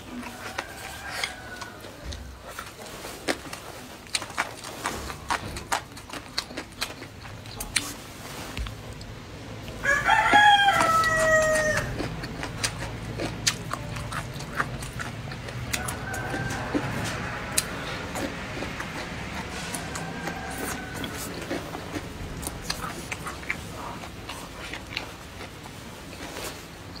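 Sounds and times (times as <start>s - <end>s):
chewing and mouth clicks: 0.0s - 27.0s
rooster crowing: 0.2s - 2.4s, 9.8s - 12.1s, 15.6s - 22.6s.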